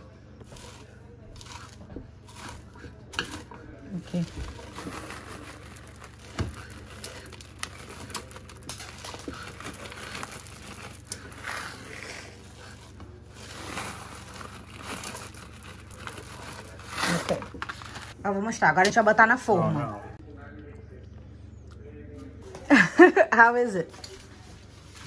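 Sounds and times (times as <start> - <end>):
sticky mix crackling and rustling: 0.3 - 18.2.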